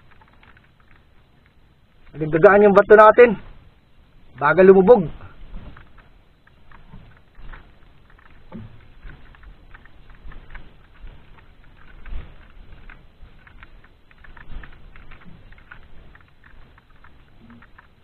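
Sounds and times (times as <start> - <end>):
fishing line ticking off spool: 5.7 - 18.0.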